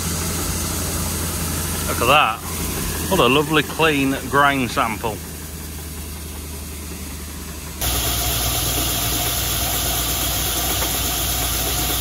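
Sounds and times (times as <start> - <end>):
combine harvester engine hum: 0.0 - 12.0
auger pouring grain hiss: 7.8 - 12.0.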